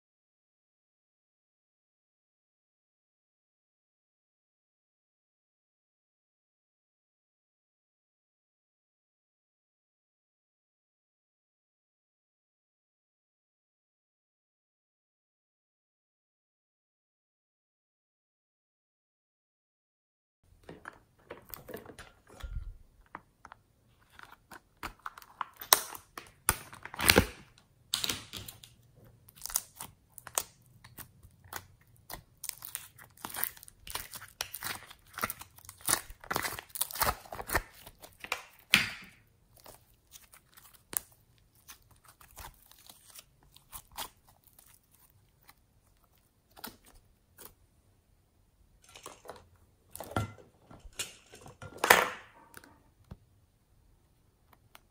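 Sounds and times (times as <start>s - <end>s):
slime squishing and crackling: 24.0s - 47.6s.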